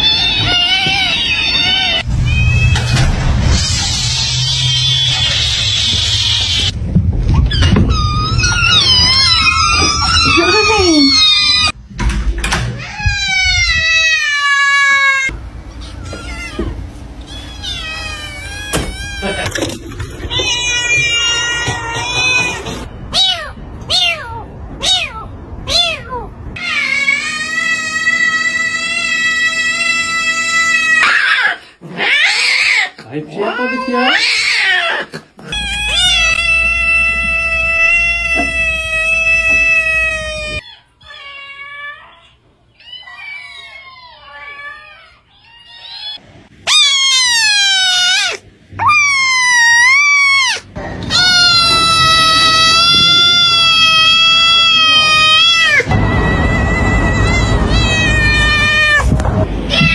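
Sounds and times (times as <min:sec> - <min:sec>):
kitten cries: 0:00.0 - 0:02.8, 0:07.4 - 0:11.8, 0:12.8 - 0:19.6, 0:20.3 - 0:33.0, 0:33.6 - 0:59.9
cat meowing: 0:12.8 - 0:33.0, 0:33.6 - 0:59.9
kitten meowing: 0:34.0 - 0:41.3, 0:45.5 - 0:59.9.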